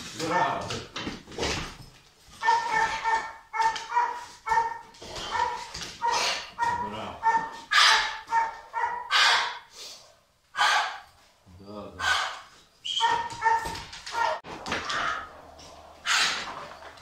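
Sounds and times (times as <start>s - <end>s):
dog barking forcefully: 2.4s - 9.7s, 12.0s - 14.4s.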